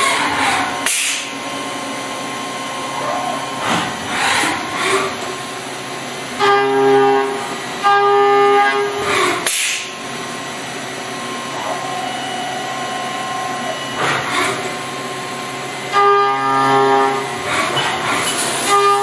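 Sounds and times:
machine hum: 0.0 - 19.0
hiss: 0.8 - 1.3, 9.4 - 9.9
horn-like tones: 6.4 - 9.2, 11.4 - 14.6, 15.7 - 17.5, 18.6 - 19.0.

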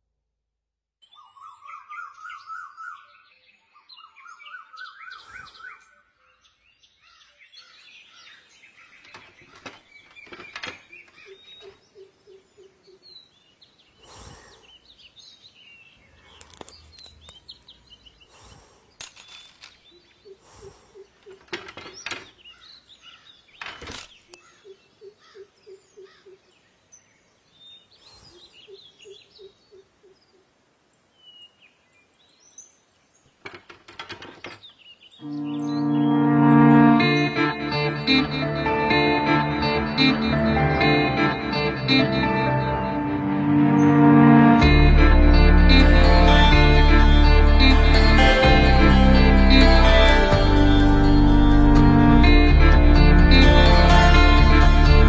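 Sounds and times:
sharp knocks: 33.4 - 34.6.

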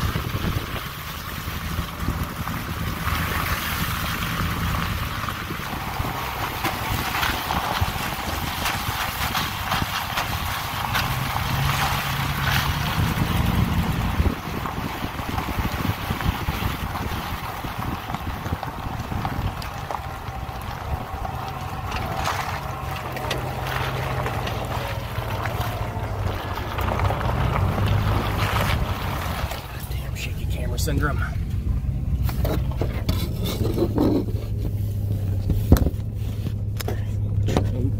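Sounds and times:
wind buffeting microphone: 0.0 - 29.6
tyres splashing over wet gravel: 0.0 - 37.6
truck engine humming: 0.0 - 37.9.

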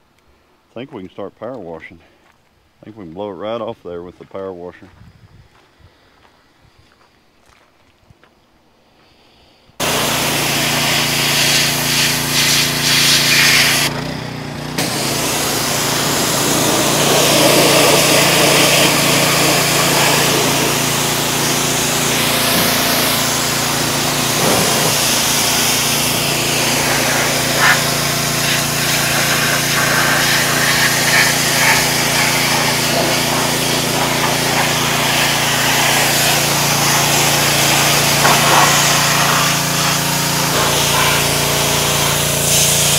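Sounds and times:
water jet hissing: 9.8 - 13.9, 14.8 - 42.9
pressure washer engine humming: 9.8 - 42.9.

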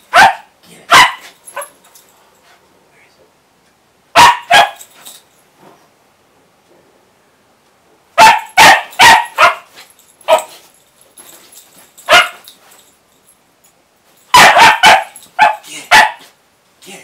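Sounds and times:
puppy barking: 0.1 - 1.8, 4.2 - 4.9, 8.2 - 9.7, 10.3 - 10.6, 12.1 - 12.4, 14.3 - 16.3.

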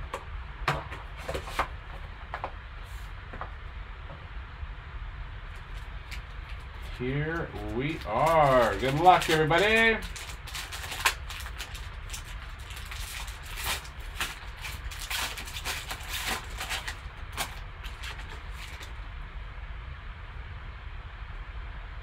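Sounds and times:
low hum: 0.0 - 22.0
foil wrapper crinkling: 5.5 - 19.0.

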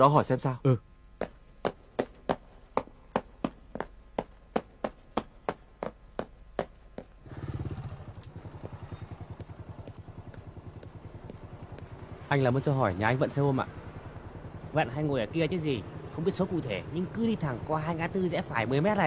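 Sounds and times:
footsteps down stairs: 1.2 - 7.2, 8.2 - 12.0
motorcycle engine idling: 3.1 - 19.0.

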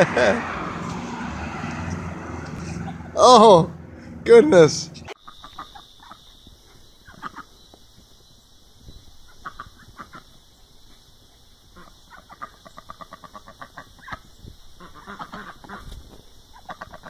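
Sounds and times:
duck quacking: 7.1 - 7.5, 14.8 - 15.9.

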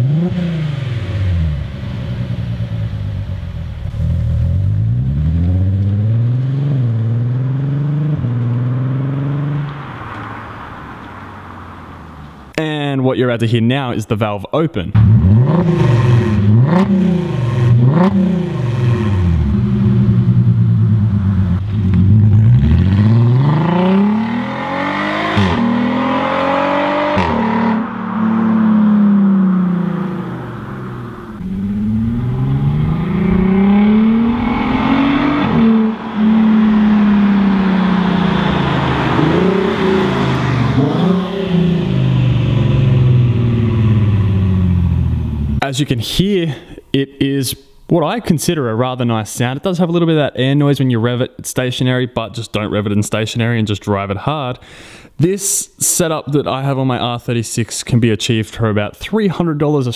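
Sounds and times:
car engine revving and accelerating: 0.0 - 12.4, 15.0 - 45.6.

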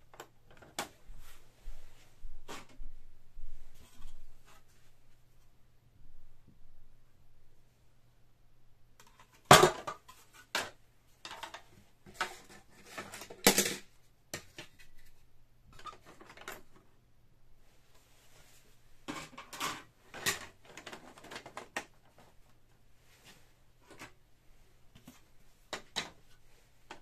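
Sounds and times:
plastic panels knocking and clattering: 9.0 - 15.0, 19.1 - 22.2, 25.0 - 26.3.

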